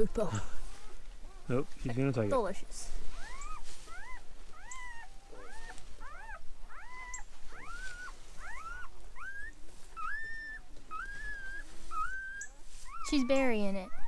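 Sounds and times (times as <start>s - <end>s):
puppy crying in high squeals: 3.2s - 14.0s.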